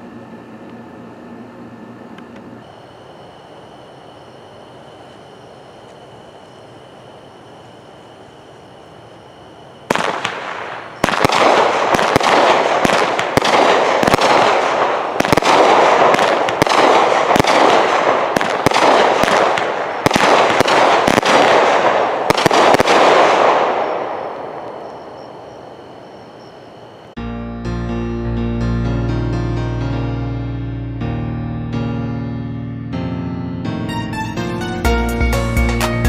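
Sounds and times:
firework report: 9.5s - 25.2s
fireworks launching and bursting: 9.9s - 24.7s.

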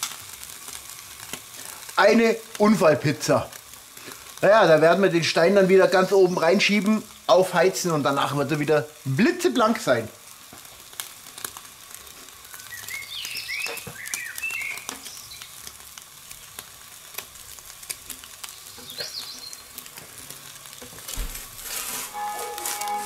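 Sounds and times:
gas burner hissing: 0.0s - 23.0s
pizza toppings sizzling: 0.0s - 23.0s
bird chirps: 12.6s - 15.4s, 18.7s - 19.6s.

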